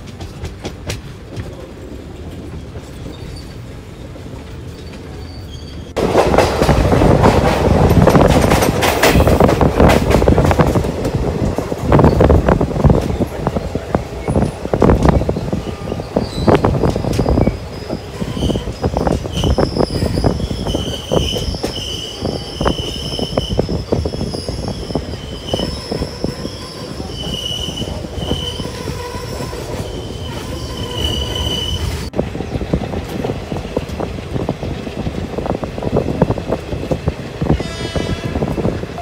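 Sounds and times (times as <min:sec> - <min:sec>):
train wheels rumbling and clattering: 0:00.0 - 0:39.0
train wheels squealing: 0:02.4 - 0:04.0, 0:04.6 - 0:06.0, 0:14.2 - 0:32.1.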